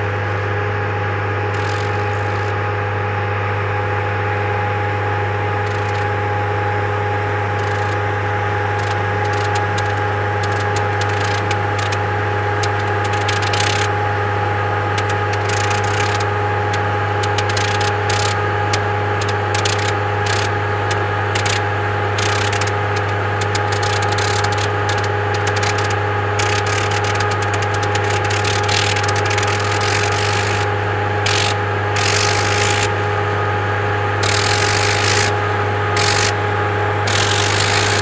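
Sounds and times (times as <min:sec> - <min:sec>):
aircraft engine running: 0:00.0 - 0:38.0
sharp crackles: 0:08.7 - 0:13.9, 0:14.9 - 0:30.6.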